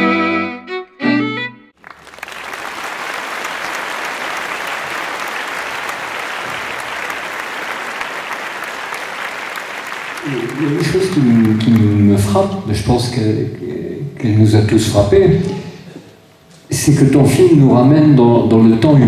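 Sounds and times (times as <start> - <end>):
audience applauding: 1.8 - 12.6.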